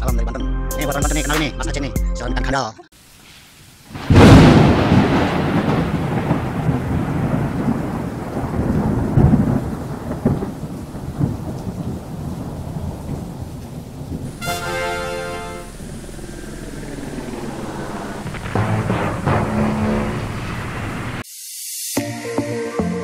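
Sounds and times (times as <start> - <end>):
rain: 2.9 - 21.3
thunder crack and rumble: 3.9 - 14.4, 15.6 - 21.2.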